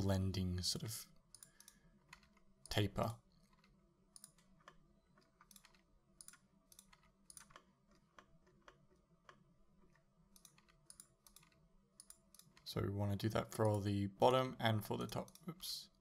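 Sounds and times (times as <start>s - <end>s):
mouse and keyboard clicks: 3.4s - 12.7s.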